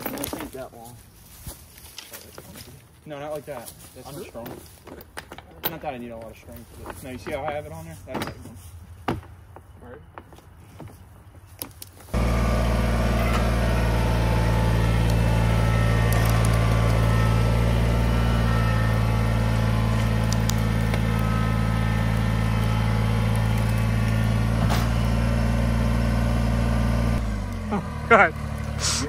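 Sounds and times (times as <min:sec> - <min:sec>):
tractor diesel engine running: 0:12.1 - 0:29.0.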